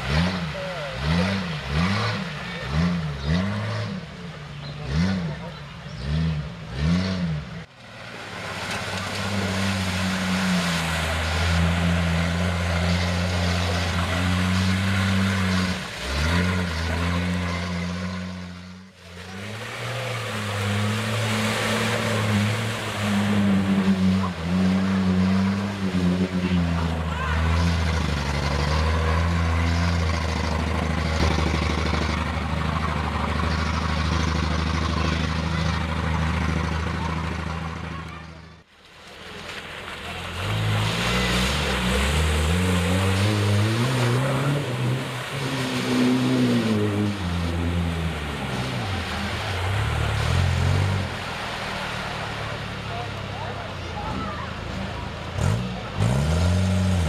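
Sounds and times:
engines revving hard: 0.0s - 38.7s, 40.0s - 57.0s
tyres spinning in mud: 19.1s - 55.0s.

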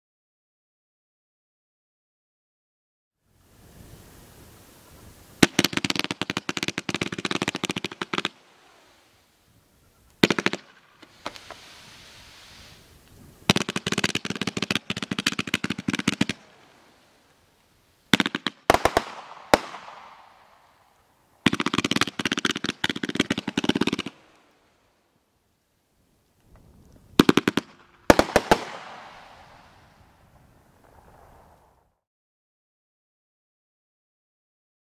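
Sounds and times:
soft hiss: 3.3s - 21.5s, 24.0s - 32.0s
fireworks crackling pops: 3.4s - 25.0s, 26.1s - 32.0s.

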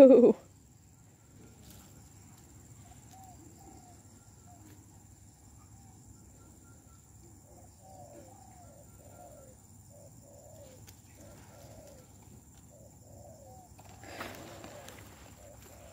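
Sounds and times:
bird calling faintly: 5.6s - 15.9s.

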